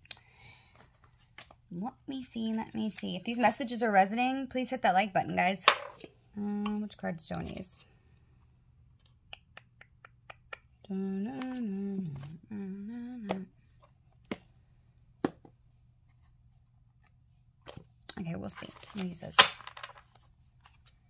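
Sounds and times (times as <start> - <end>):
woman humming: 10.8 - 13.6.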